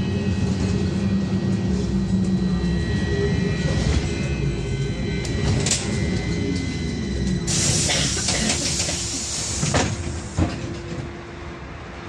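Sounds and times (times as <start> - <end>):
air hissing: 7.5 - 10.4.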